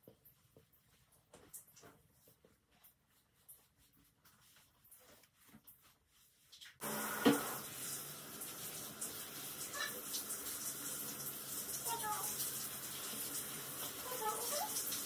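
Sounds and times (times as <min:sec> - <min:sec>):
shower head spraying water: 0:06.8 - 0:15.0.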